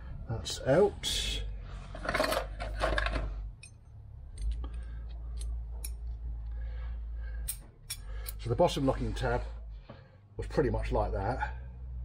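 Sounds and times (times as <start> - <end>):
small metal parts clinking: 1.9 - 6.1.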